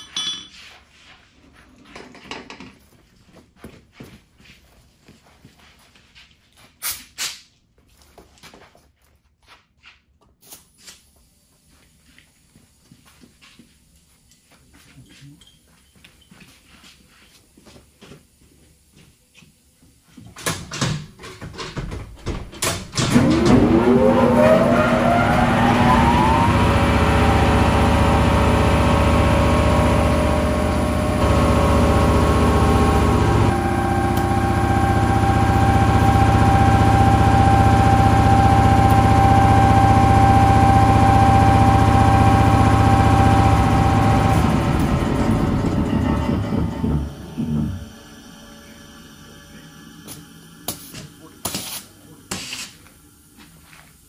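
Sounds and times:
knocks and clatters: 1.8s - 2.8s, 20.3s - 23.8s
air compressor running: 22.7s - 54.0s.

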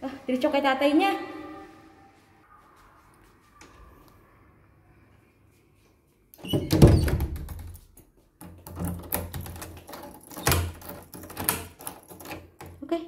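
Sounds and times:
clatter of clicks and knocks: 8.4s - 12.8s.

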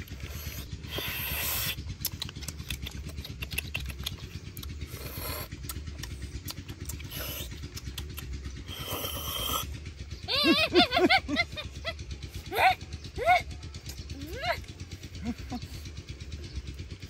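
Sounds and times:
steady low rumble: 0.0s - 17.0s
person slurping at a bone: 0.1s - 2.2s, 4.8s - 8.0s
mouth-smacking clicks: 1.6s - 8.5s.

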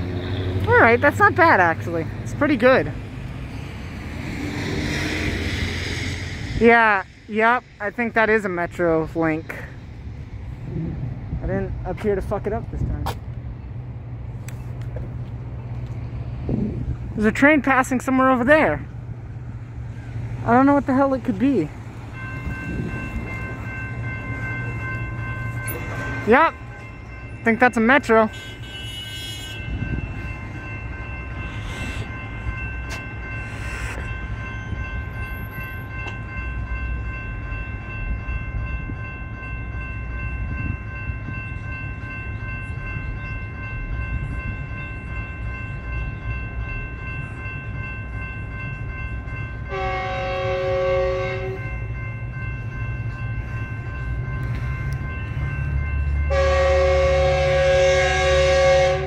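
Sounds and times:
train engine and rail rumble: 0.0s - 59.0s
train air horn blast: 28.3s - 29.6s, 49.7s - 51.6s, 56.3s - 59.0s.

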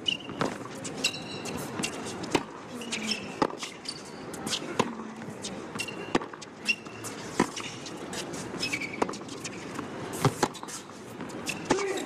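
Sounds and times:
shoe squeaks on court: 0.0s - 4.8s, 5.4s - 12.0s
racket hitting tennis ball: 5.7s - 11.9s.

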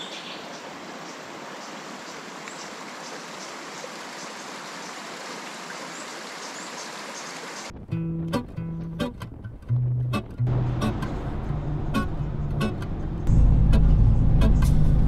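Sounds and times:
river flowing over stones: 0.0s - 7.7s.

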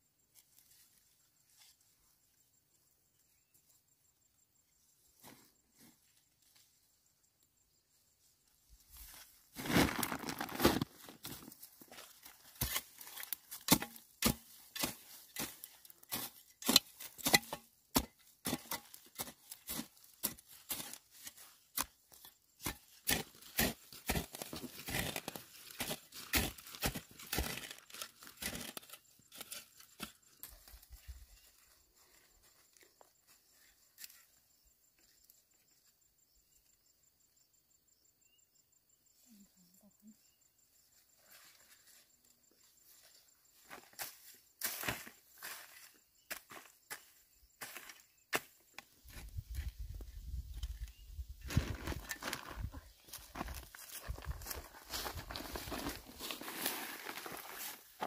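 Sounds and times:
hoe chopping and scraping soil: 9.6s - 31.2s, 43.8s - 54.2s, 54.9s - 58.0s.

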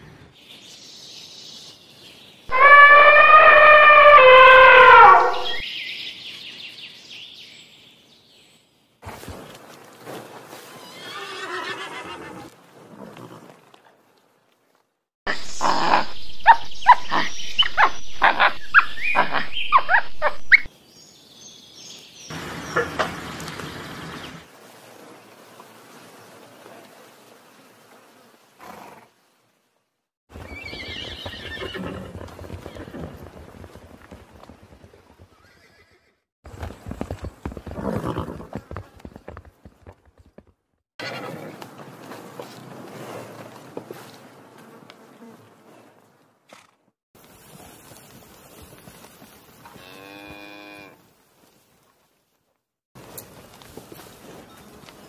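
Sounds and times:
animal calls sliding in pitch: 2.5s - 5.6s
rough animal call: 2.5s - 5.6s, 15.3s - 20.7s.

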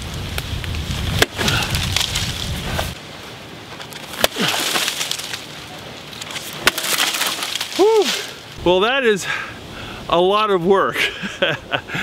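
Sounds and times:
axe chopping into log: 1.2s - 2.1s, 4.1s - 5.3s, 6.5s - 7.8s.

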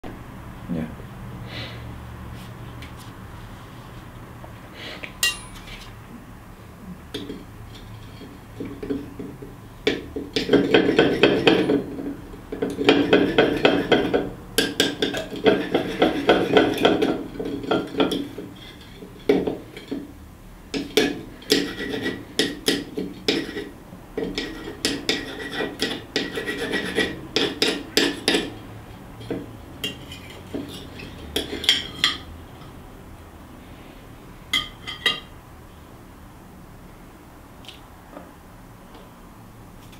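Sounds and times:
cutlery clinking on plate: 5.2s - 5.9s, 34.6s - 35.3s
knife sawing on a plate: 15.2s - 16.9s, 21.4s - 28.6s.

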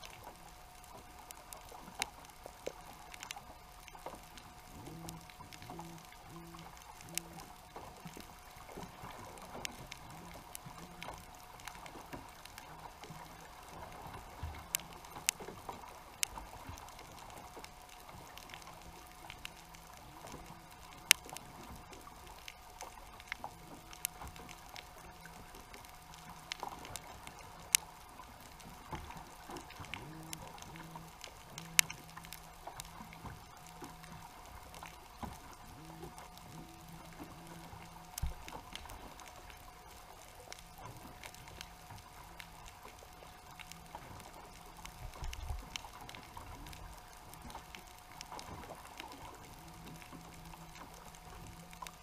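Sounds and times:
faint steady hum: 0.0s - 52.0s
faint underwater hiss: 0.0s - 52.0s
low pulsing drone: 0.0s - 52.0s
sharp clicks: 14.5s - 52.0s.

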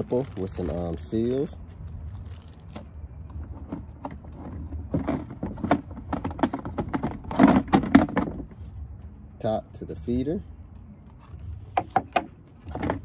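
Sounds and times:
hard plastic parts clicking and knocking: 3.3s - 8.5s, 11.8s - 13.0s.

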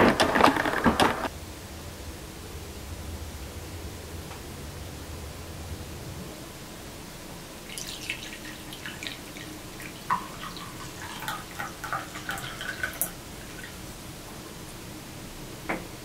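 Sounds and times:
coffee pouring into a mug: 7.6s - 13.8s.

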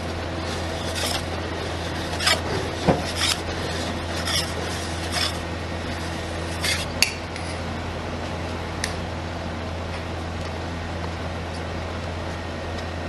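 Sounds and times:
low hum: 0.0s - 13.0s
metal spatula scraping steel plate: 0.4s - 6.9s.

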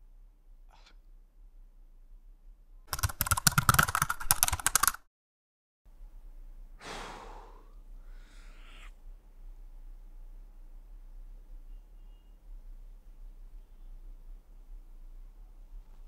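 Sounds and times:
rapid clattering clicks: 2.9s - 5.0s
man sighing heavily: 6.8s - 8.5s.

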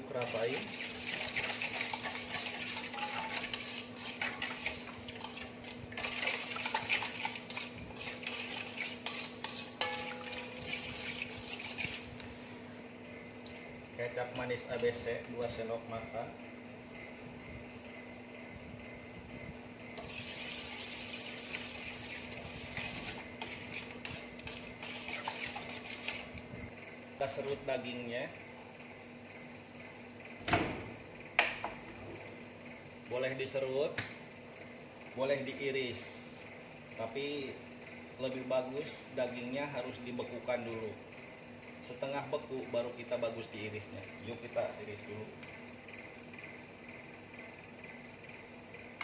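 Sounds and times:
metal spoon scraping bowl: 0.1s - 12.2s, 20.0s - 26.4s
spoon knocking ringing bowl: 9.8s - 10.6s.

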